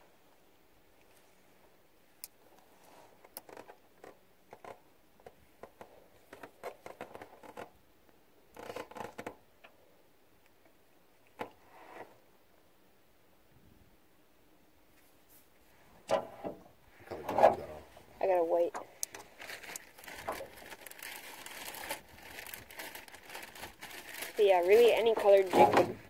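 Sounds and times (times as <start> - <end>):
handling noise clicks and rustles: 2.2 - 7.8, 18.5 - 26.0.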